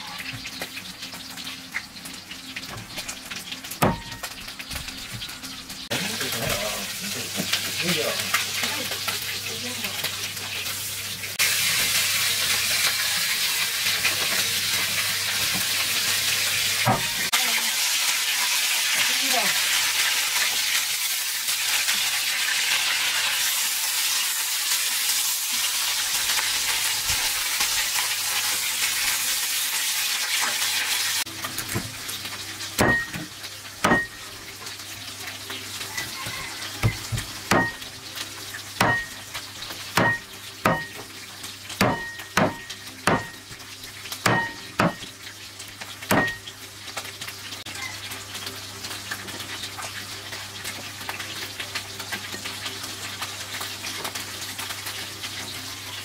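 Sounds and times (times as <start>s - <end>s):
fish sizzling in a pan: 0.0s - 56.0s
knife chopping on a board: 3.8s - 4.1s, 32.8s - 33.2s, 33.8s - 34.1s, 36.8s - 37.8s, 38.8s - 39.1s, 40.0s - 41.0s, 41.8s - 43.4s, 44.2s - 45.0s, 46.1s - 46.4s.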